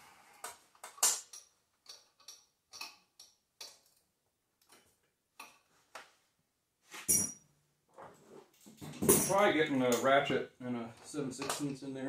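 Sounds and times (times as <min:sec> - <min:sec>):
faint clicks and taps of tools: 0:00.4 - 0:06.2.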